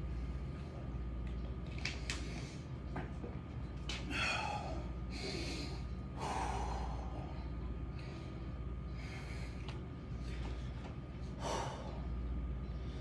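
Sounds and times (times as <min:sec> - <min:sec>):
steady low hum: 0:00.0 - 0:13.0
man breathing hard: 0:04.1 - 0:13.0.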